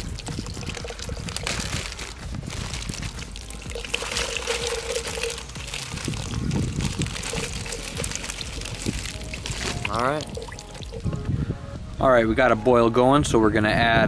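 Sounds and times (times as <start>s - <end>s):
broth pouring into soup: 0.0s - 11.0s.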